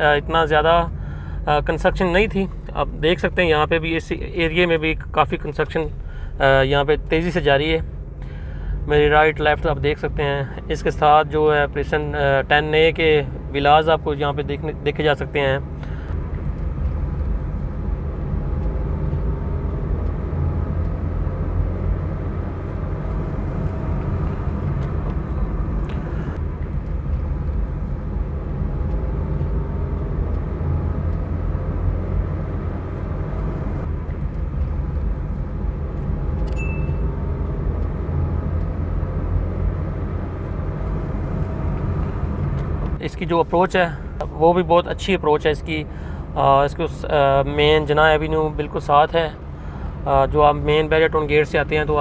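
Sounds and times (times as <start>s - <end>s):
car engine and tyres rumbling: 0.0s - 52.0s
short high chirp: 36.5s - 37.1s.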